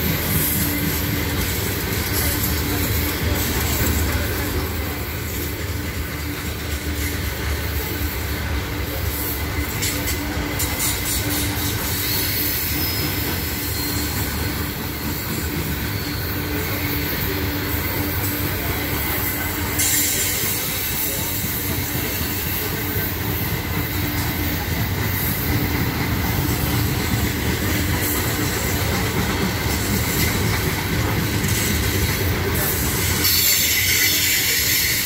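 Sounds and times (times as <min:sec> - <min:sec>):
freight train wheels rumbling on rails: 0:00.0 - 0:35.0
thin wheel squeal: 0:10.8 - 0:17.1, 0:33.0 - 0:35.0.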